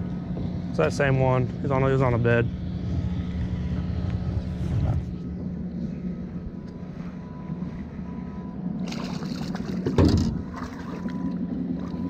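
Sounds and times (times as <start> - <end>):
boat low hum: 0.0 - 12.0
thump on boat floor: 9.8 - 10.4.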